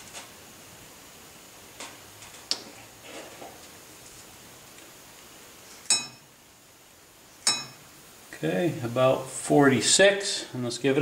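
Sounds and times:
metallic ring: 5.9 - 6.3, 7.4 - 7.9.

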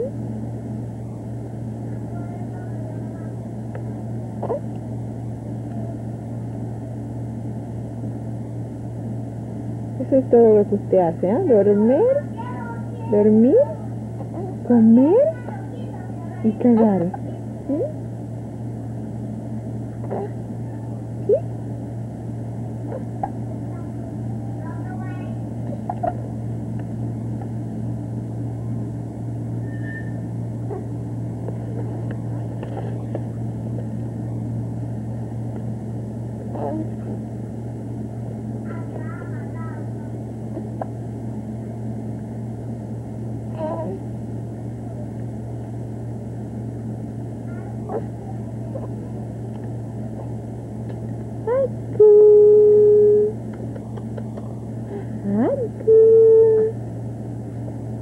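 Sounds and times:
steady low hum: 0.0 - 58.0
loud held voice-like note: 51.5 - 53.4, 55.4 - 56.8.

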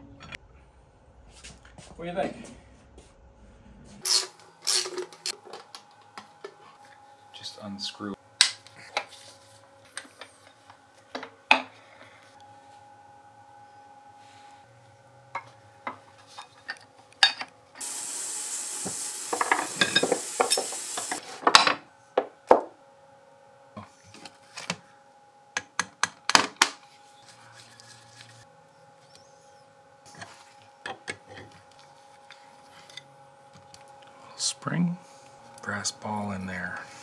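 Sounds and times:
faint steady hum: 17.8 - 21.2
loud hiss: 17.8 - 21.2.

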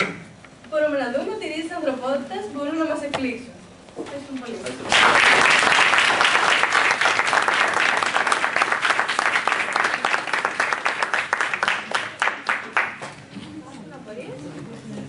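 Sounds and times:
audience applauding: 4.8 - 13.1.

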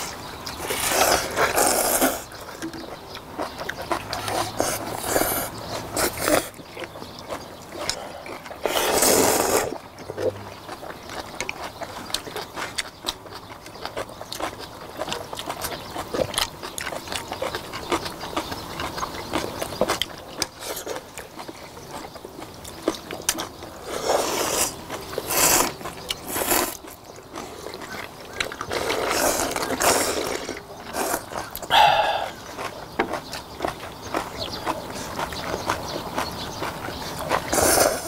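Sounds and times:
people slurping noodles: 0.0 - 2.4, 4.0 - 6.6, 7.8 - 10.5, 23.8 - 27.7, 28.7 - 32.7, 37.1 - 38.0
chewing: 0.0 - 38.0.

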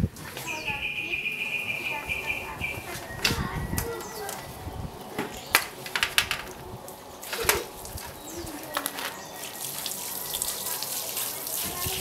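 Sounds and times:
plastic clacking on concrete: 5.2 - 6.6, 7.2 - 7.7, 8.7 - 9.2.

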